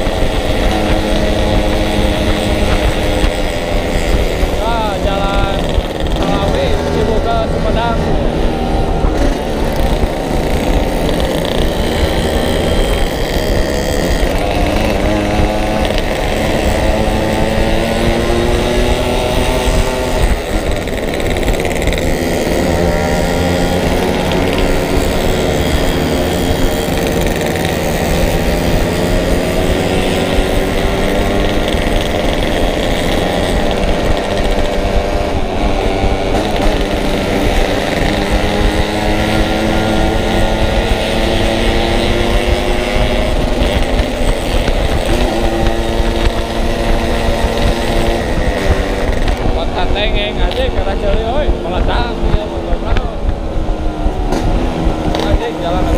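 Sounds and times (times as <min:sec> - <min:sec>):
motorcycle engine revving: 0:00.0 - 0:55.9
wind rumble on microphone: 0:00.0 - 0:55.9.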